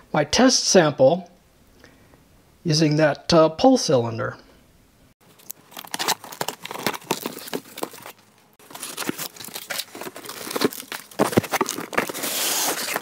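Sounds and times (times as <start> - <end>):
cardboard and plastic wrapping crinkling: 5.2 - 13.0.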